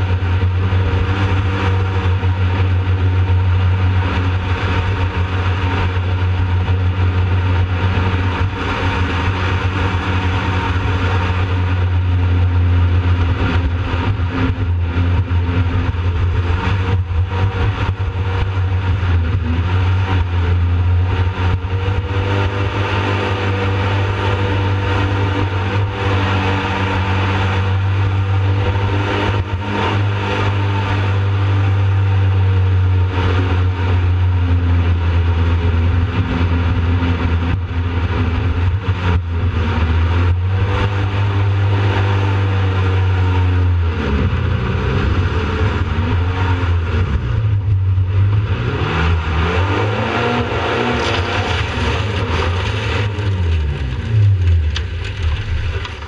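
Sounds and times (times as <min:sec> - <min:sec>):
boat engine running: 0:00.0 - 0:56.0
water rushing beneath hull: 0:50.6 - 0:56.0.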